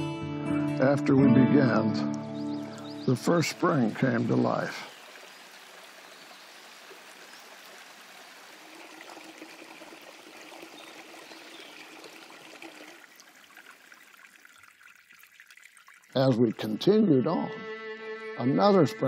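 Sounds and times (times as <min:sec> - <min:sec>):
stream trickling over rocks: 0:02.6 - 0:16.8.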